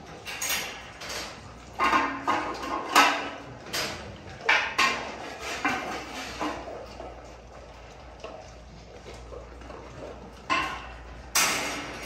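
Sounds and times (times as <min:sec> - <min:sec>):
metal clanks and rattles: 0:00.0 - 0:12.0.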